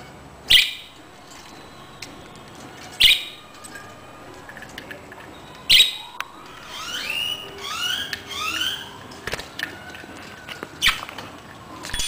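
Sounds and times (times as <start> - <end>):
budgerigars squawking and chirping: 3.0 - 3.4, 5.7 - 9.0.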